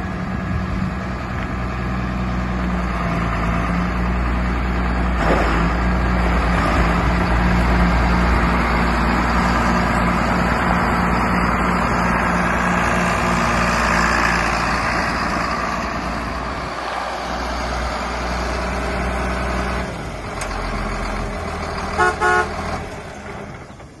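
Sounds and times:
tractor diesel engine running: 0:00.0 - 0:24.0
horn toots: 0:22.0 - 0:22.6.

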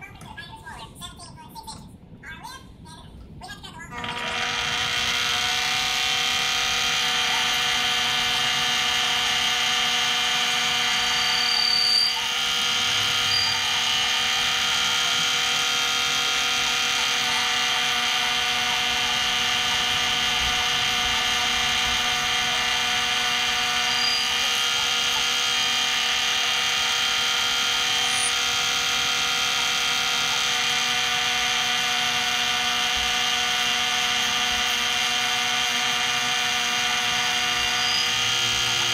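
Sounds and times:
lathe motor whining: 0:04.0 - 0:38.9.

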